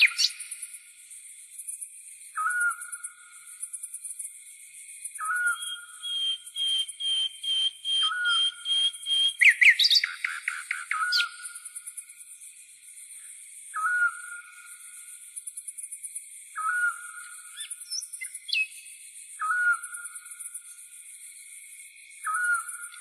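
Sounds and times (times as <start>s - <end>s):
bird whistled call: 0.0s - 0.4s, 2.3s - 3.0s, 5.2s - 11.5s, 13.7s - 14.5s, 16.6s - 18.8s, 19.4s - 20.0s, 22.2s - 23.0s.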